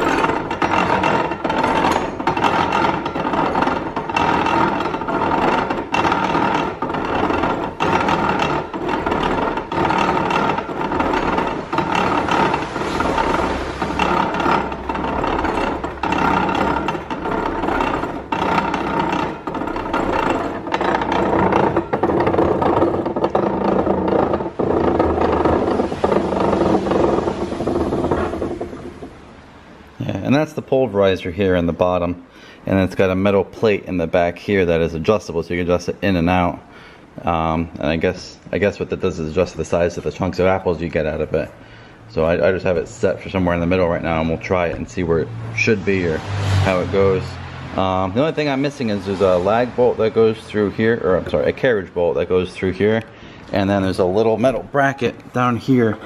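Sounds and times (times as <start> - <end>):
regular knock of grinder: 0.0 - 29.2
apple grinder clattering rumble: 0.0 - 29.5.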